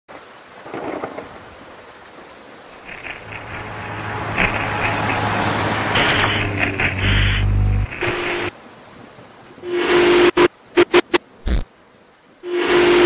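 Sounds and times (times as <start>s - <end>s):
glitchy crackles: 0.6s - 1.5s, 2.7s - 8.6s, 9.6s - 11.7s, 12.4s - 13.0s
tv static hiss: 2.7s - 5.3s, 5.9s - 8.5s, 9.6s - 13.0s
low steady hum: 2.9s - 8.5s.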